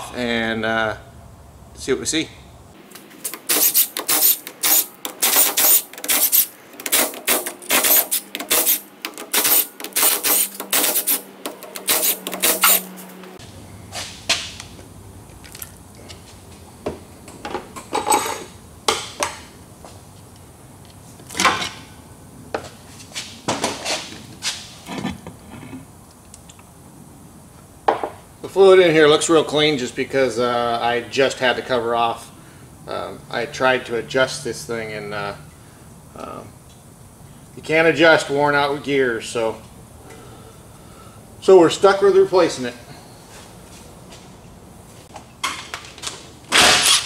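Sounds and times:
cordless power tool running: 0:03.3 - 0:13.1.

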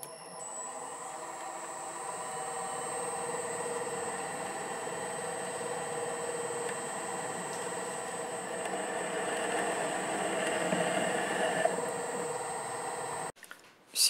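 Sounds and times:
lathe running with high whine: 0:00.0 - 0:13.3.

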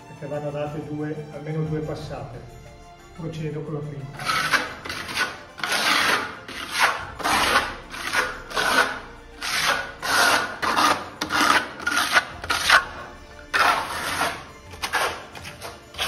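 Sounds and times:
trowel scraping render on wall: 0:04.1 - 0:16.0.

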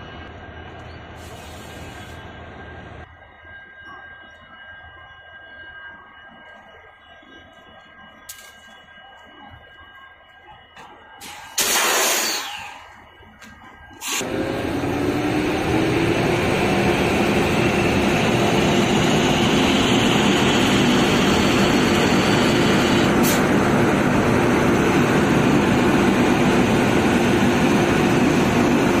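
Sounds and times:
locomotive cooling blowers whining: 0:07.2 - 0:29.0.

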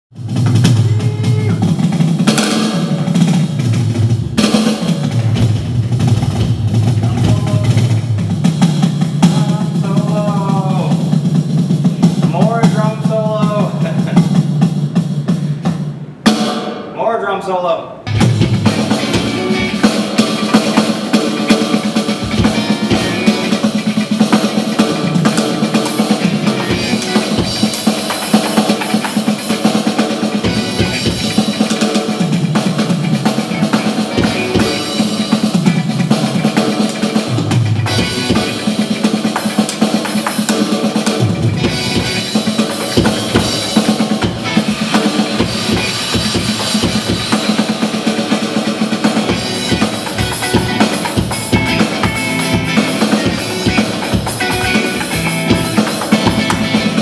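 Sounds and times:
electronic drum kit solo: 0:00.1 - 0:17.2, 0:17.9 - 0:57.0
electric guitar playing: 0:18.0 - 0:57.0.

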